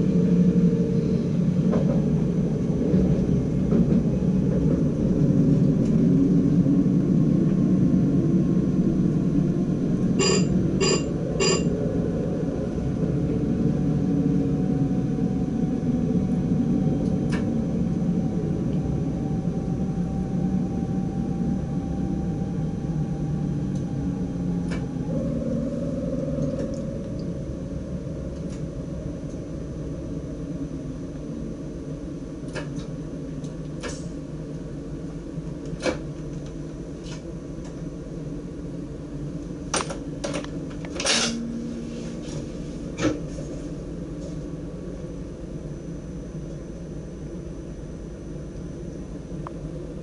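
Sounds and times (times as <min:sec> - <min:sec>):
train running gear rumble: 0:00.0 - 0:50.0.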